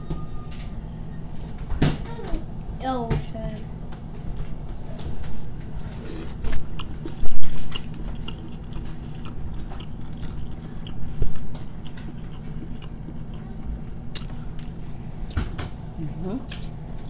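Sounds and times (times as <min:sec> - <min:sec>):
woman chewing food: 0:05.2 - 0:15.5.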